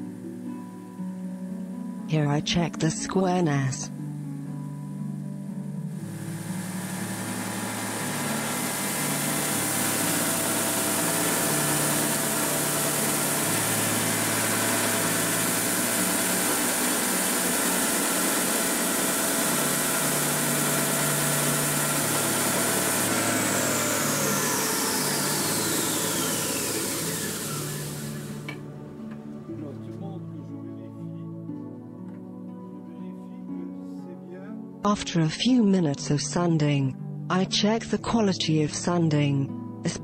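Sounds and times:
belt sander whining: 0:05.9 - 0:29.8
dust extraction running: 0:05.9 - 0:30.1.

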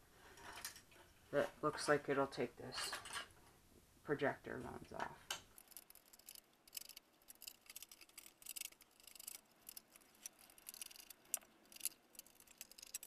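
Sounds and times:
handling metal and plastic parts: 0:05.0 - 0:13.0
screwdriver clicks and scrapes: 0:05.5 - 0:13.0.

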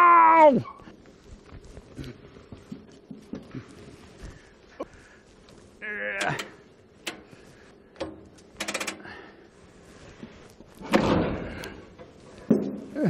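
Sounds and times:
rattle of clicks: 0:05.4 - 0:09.3.

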